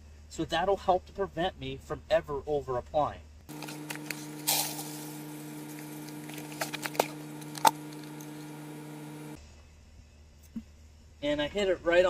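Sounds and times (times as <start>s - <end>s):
steady low hum: 3.1s - 11.2s
pellets pouring into bucket: 3.5s - 8.3s.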